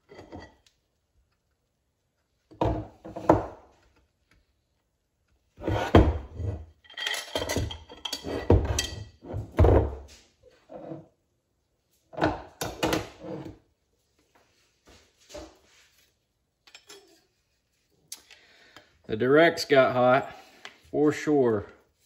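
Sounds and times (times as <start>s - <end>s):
metallic clatter and clinks: 6.8s - 9.1s.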